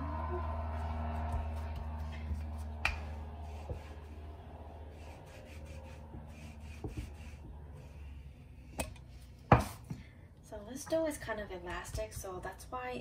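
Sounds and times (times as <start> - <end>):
rolling pin rubbing over dough: 2.4 - 8.4.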